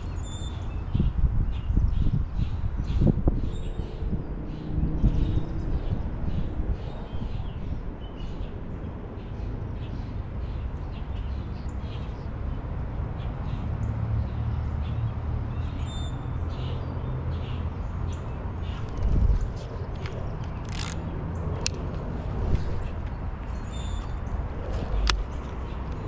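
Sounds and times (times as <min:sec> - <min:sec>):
birds chirping: 0:00.0 - 0:26.0
steady low rumble: 0:17.8 - 0:26.0.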